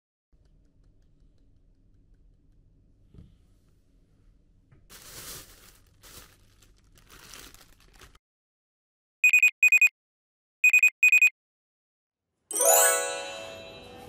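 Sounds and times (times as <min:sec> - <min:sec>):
packaging crinkling: 0:04.9 - 0:08.2.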